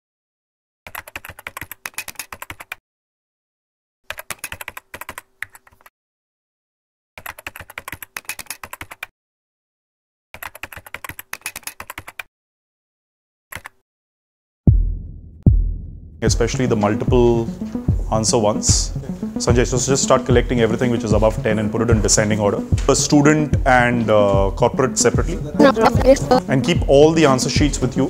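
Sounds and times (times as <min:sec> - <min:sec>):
rapid computer keyboard clicks: 0:00.9 - 0:02.8, 0:04.1 - 0:05.9, 0:07.2 - 0:09.1, 0:10.4 - 0:12.3, 0:13.5 - 0:13.8.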